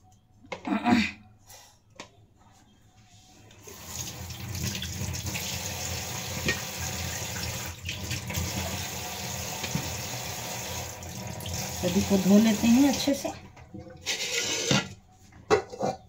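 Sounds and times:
tap water running into sink: 3.6 - 13.2.

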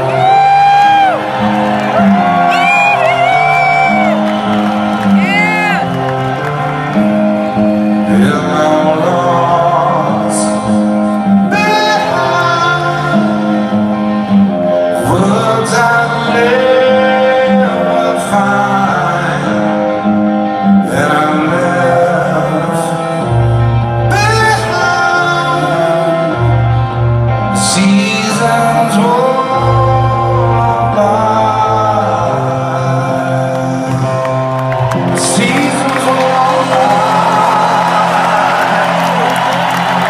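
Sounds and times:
live rock band playing: 0.0 - 40.0
man singing: 7.4 - 40.0.

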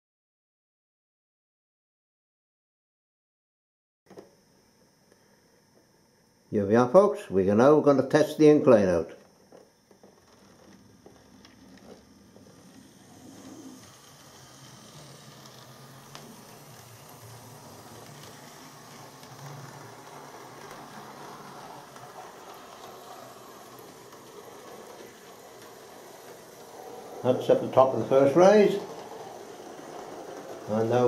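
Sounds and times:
model train motor whirr: 9.5 - 31.0.

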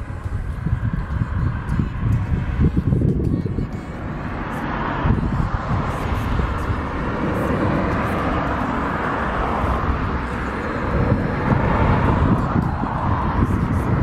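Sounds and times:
wind on microphone: 0.0 - 14.0
car driving past: 4.3 - 14.0.

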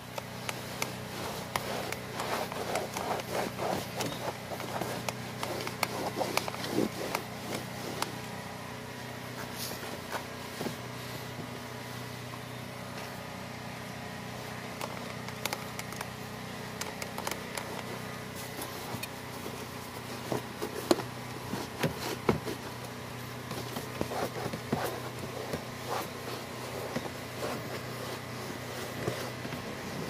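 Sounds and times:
towel scrubbing rubber floor: 0.9 - 8.1.

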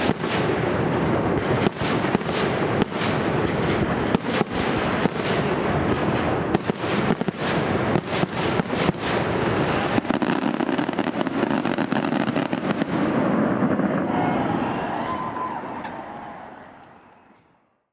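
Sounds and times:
fireworks crackling: 0.0 - 17.2.

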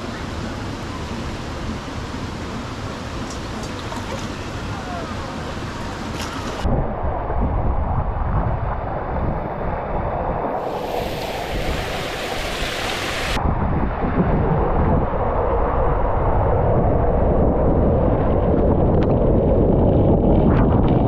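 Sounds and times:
wind buffeting microphone: 5.0 - 21.0
rushing water: 10.5 - 13.4
harsh hissing: 10.6 - 13.4.

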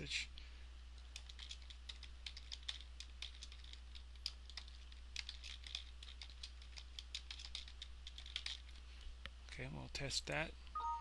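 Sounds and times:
faint low hum: 0.0 - 11.0
keyboard typing: 1.1 - 8.8.

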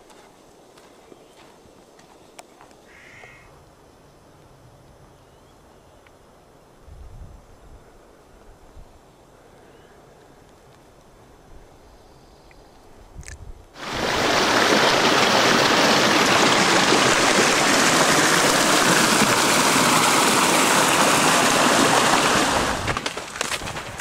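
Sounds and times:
stream rushing over logs: 13.8 - 24.0.

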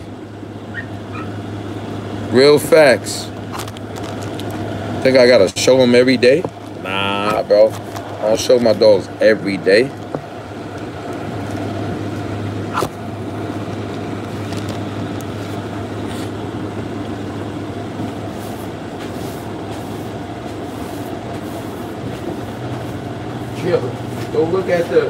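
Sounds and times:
constant whirring: 0.0 - 25.0
low machine hum: 0.0 - 25.0.

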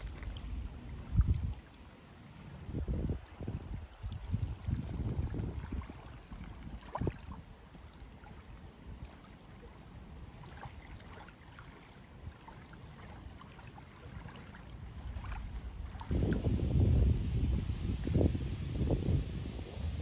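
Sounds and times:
water lapping at gravel shore: 0.0 - 20.0
wind rumble on microphone: 0.0 - 20.0.

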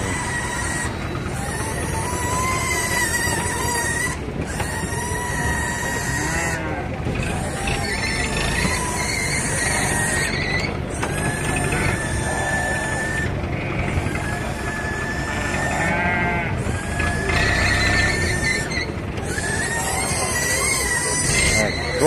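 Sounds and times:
sheep bleating: 15.4 - 16.7.

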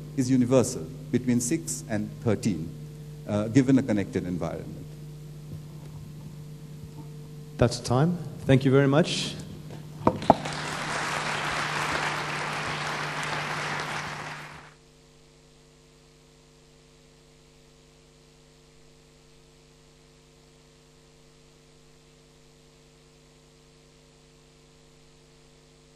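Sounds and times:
electrical mains hum: 0.0 - 25.9
audience applause: 10.2 - 14.8.

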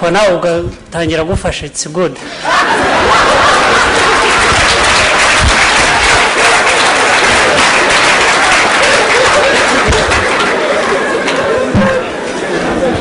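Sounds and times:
voices in crowd: 2.1 - 13.0
crowd clapping: 2.6 - 12.7.

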